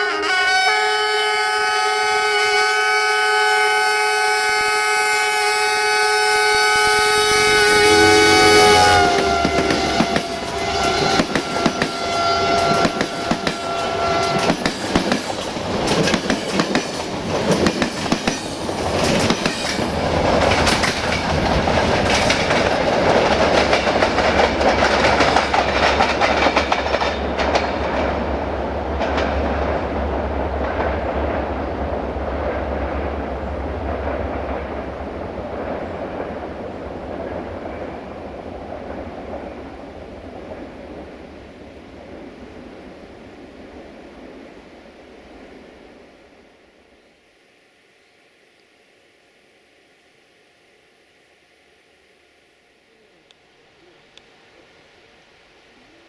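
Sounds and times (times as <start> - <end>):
locomotive air horn: 0.0 - 14.6
train wheels clattering over rail joints: 9.4 - 28.2.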